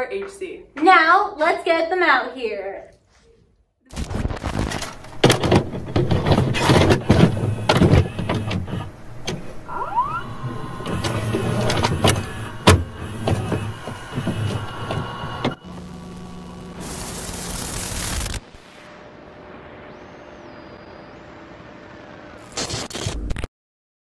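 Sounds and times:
tape deck clunks and clicks: 0:04.6 - 0:09.6
motor whirring: 0:06.4 - 0:18.6
short rising whine: 0:07.0 - 0:22.9.

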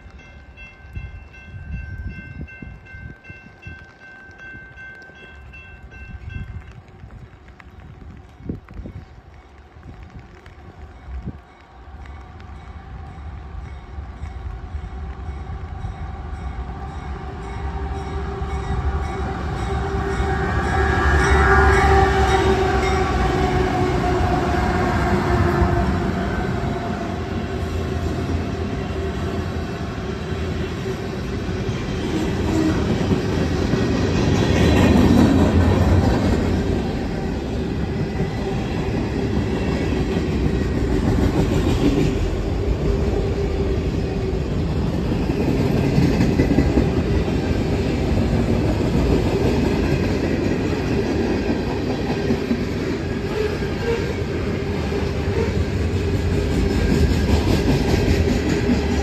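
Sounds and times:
train wheel and rail noise: 0:00.0 - 0:59.0.

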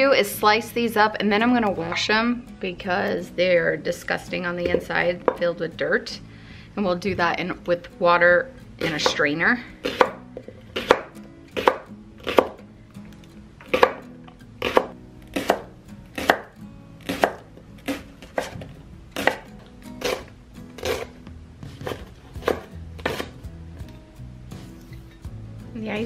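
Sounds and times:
knife slicing onto wooden board: 0:17.0 - 0:18.6, 0:19.2 - 0:19.4, 0:20.0 - 0:21.1, 0:21.8 - 0:23.3.

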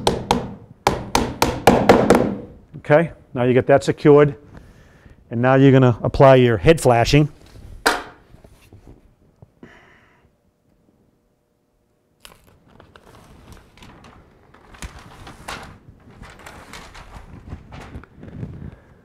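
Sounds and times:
release paper peeling and crinkling: 0:12.2 - 0:18.6.

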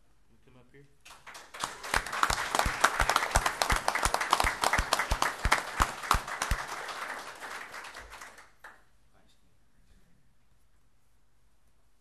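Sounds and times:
group applauding: 0:01.0 - 0:08.9
nearby person clapping steadily: 0:01.1 - 0:08.8.

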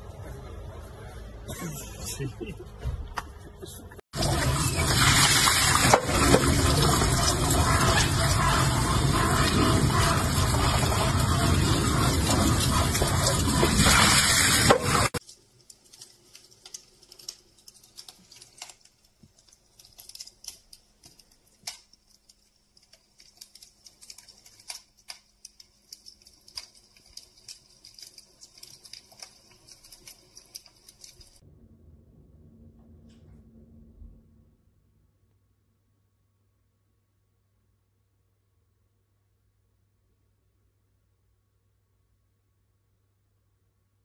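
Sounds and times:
water pouring onto rocks: 0:04.2 - 0:31.4
wood fire crackling: 0:04.2 - 0:31.4.

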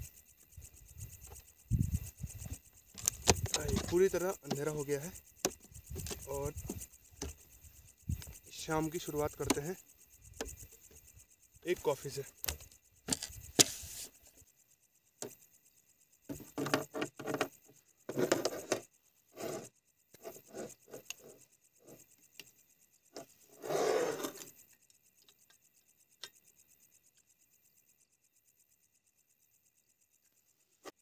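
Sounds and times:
knocks rubs and clicks of gear: 0:02.1 - 0:14.4, 0:15.2 - 0:15.5, 0:16.3 - 0:26.4
scrape on table: 0:13.5 - 0:14.2, 0:18.1 - 0:22.0, 0:23.2 - 0:24.5.

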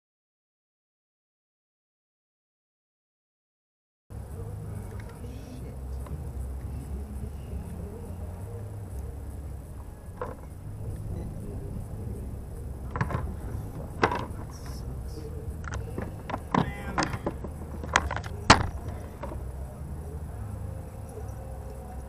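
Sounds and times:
gear clicking and knocking: 0:08.9 - 0:19.7.

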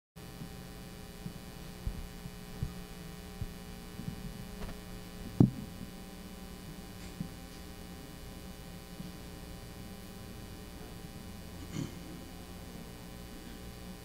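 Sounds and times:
mains hum: 0:00.2 - 0:14.0
microphone handling thuds: 0:01.2 - 0:05.9.

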